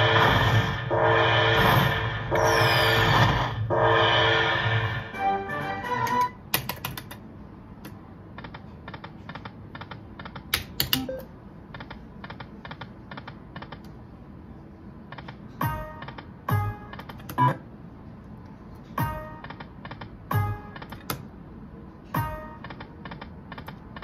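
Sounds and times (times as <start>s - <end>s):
slot machine win jingle: 5.1s - 6.4s
slot machine chimes: 5.2s - 6.4s
slot machine spin clicks: 5.2s - 7.2s, 9.8s - 11.3s.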